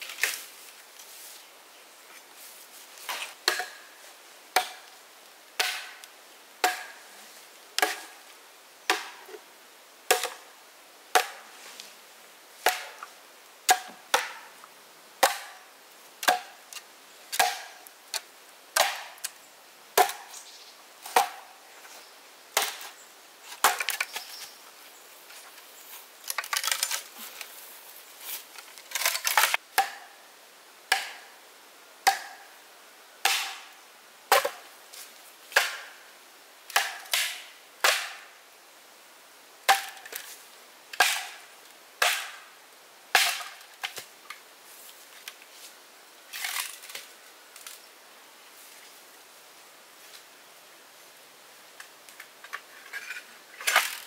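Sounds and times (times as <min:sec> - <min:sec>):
axe chopping wood: 0:03.4 - 0:03.8, 0:04.6 - 0:04.9, 0:05.6 - 0:06.0, 0:06.6 - 0:07.0, 0:07.8 - 0:08.1, 0:08.9 - 0:09.2, 0:11.1 - 0:11.4, 0:12.6 - 0:13.0, 0:13.7 - 0:14.4, 0:15.2 - 0:15.5, 0:16.2 - 0:16.5, 0:17.3 - 0:17.8, 0:18.8 - 0:19.2, 0:20.0 - 0:20.2, 0:21.1 - 0:21.4, 0:22.6 - 0:22.9, 0:29.8 - 0:30.0, 0:30.9 - 0:31.2, 0:32.0 - 0:32.4, 0:33.2 - 0:33.6, 0:34.3 - 0:34.6, 0:35.6 - 0:35.9, 0:36.7 - 0:38.2, 0:39.7 - 0:40.0, 0:41.0 - 0:41.4, 0:42.0 - 0:42.4, 0:43.2 - 0:43.6.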